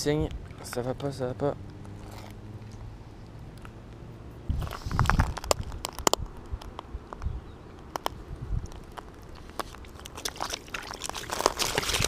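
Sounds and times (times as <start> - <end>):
shells and pebbles crunching underfoot: 1.9 - 2.8, 4.5 - 12.0.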